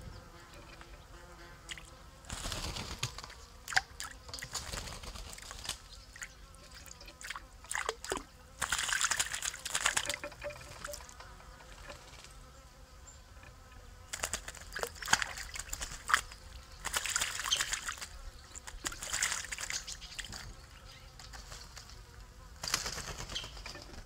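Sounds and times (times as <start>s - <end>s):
bird splashing in water: 1.6s - 12.4s, 14.1s - 20.5s.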